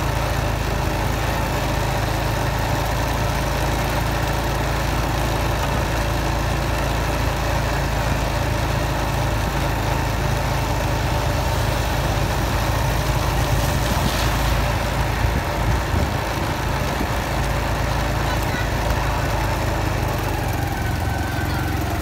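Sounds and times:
motorcycle engine running: 0.0 - 22.0
tyres hissing through water: 9.6 - 20.4.

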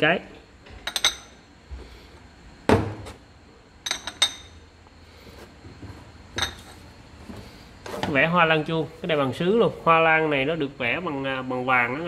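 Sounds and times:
porcelain dishes clinking: 0.8 - 1.4, 3.8 - 4.6, 6.4 - 6.7.

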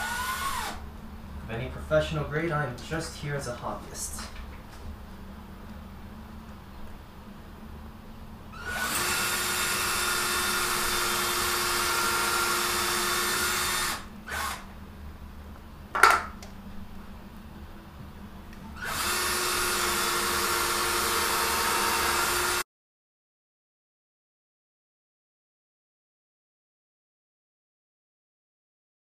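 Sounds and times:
cordless drill boring into wood: 0.0 - 0.8, 8.6 - 14.6, 18.8 - 22.6.

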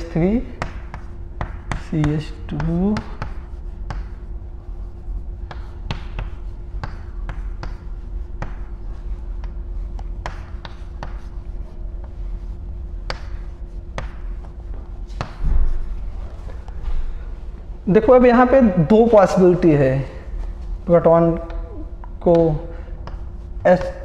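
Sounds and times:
chalk tapping on chalkboard: 0.0 - 16.6, 21.4 - 24.0
low hum: 0.0 - 24.0.

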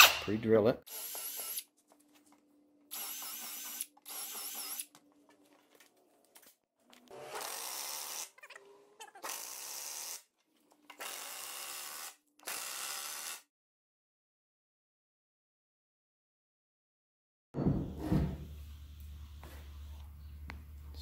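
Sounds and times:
cordless drill drilling: 2.9 - 4.9, 7.1 - 8.3, 11.0 - 13.4.

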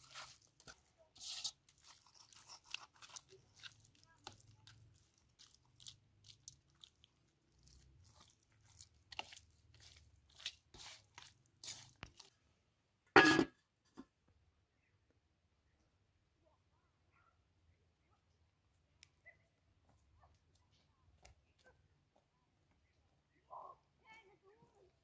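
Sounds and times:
onion grating on metal grater: 0.0 - 12.3
wet squish of raw chicken: 0.0 - 12.4.

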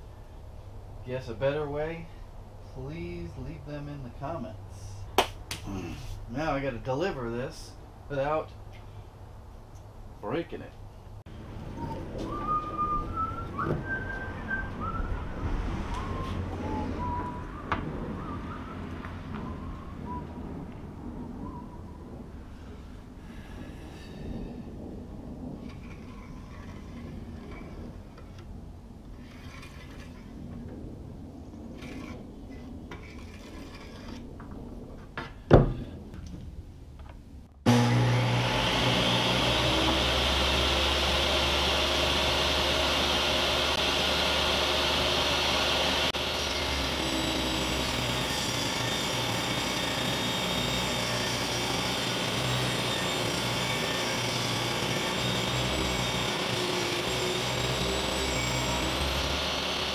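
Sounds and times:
table saw running: 37.7 - 59.9.

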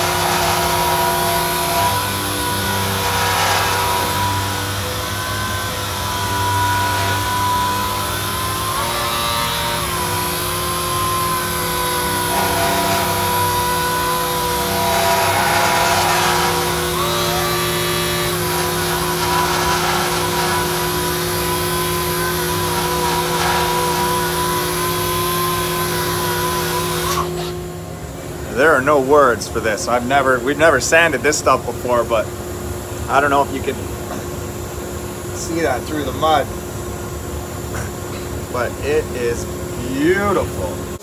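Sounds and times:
palm sander motor whine: 0.0 - 29.2.

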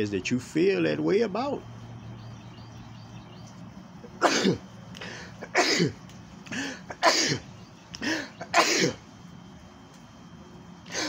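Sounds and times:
man coughing: 4.2 - 4.6, 5.4 - 6.0, 6.6 - 9.0.

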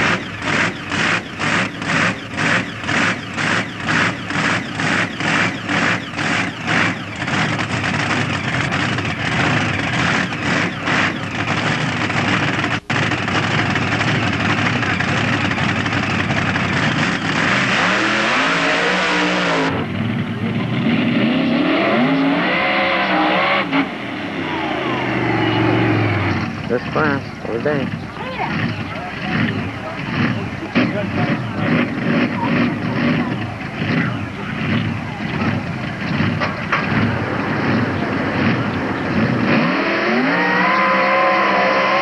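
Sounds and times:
racing engine revving: 0.0 - 42.0.

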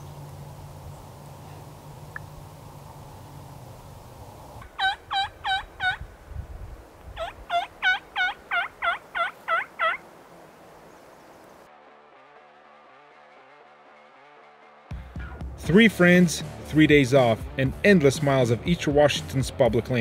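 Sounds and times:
wild turkey yelping: 4.6 - 6.0, 7.2 - 10.1.

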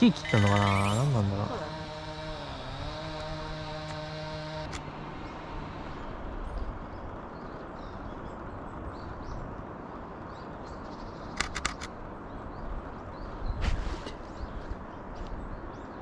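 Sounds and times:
outdoor background noise: 0.0 - 16.0
faint high bird calls: 0.1 - 1.4
quick sharp clicks: 11.3 - 12.0.

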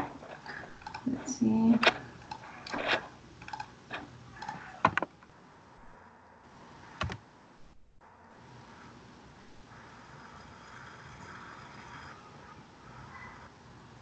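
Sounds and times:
computer mouse clicks: 0.4 - 1.1, 1.8 - 3.7, 4.4 - 5.1, 7.0 - 7.2.

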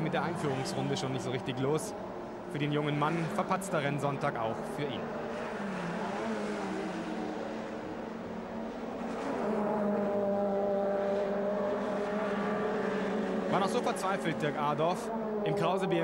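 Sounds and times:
racing engines at high revs: 0.0 - 16.0.

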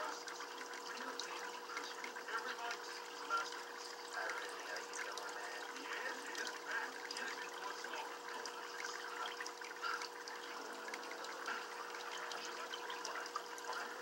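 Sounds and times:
faint steady hum: 0.0 - 14.0
water trickling and bubbling: 0.0 - 14.0.

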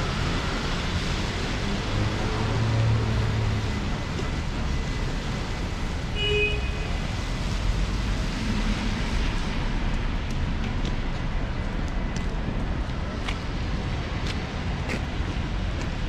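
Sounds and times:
city street traffic hum: 0.0 - 16.0.

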